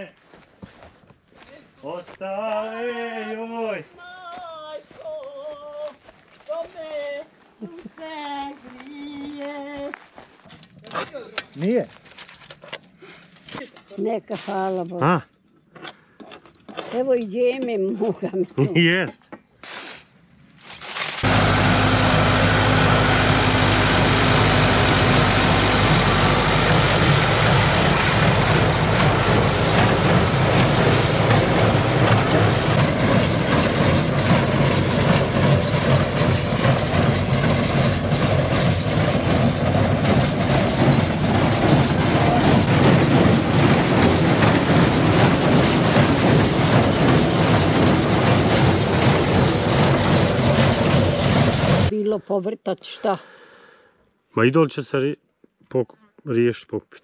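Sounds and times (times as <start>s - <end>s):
tractor engine running: 21.2s - 52.0s.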